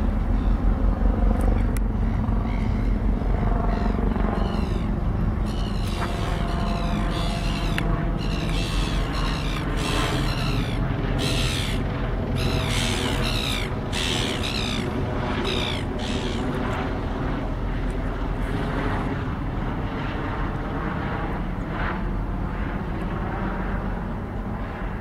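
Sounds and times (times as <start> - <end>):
distant locomotive drone: 0.0 - 25.0
bird calling: 3.7 - 16.5.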